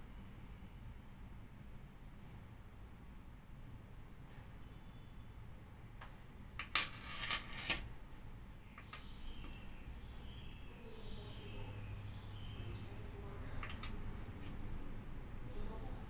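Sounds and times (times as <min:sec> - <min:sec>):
pellet rattling on wooden table: 0:06.6 - 0:07.9.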